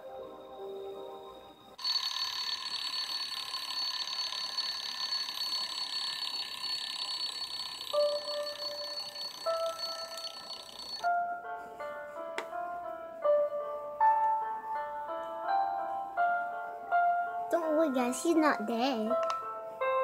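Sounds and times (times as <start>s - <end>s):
rattling electronic alarm ring: 1.8s - 11.1s.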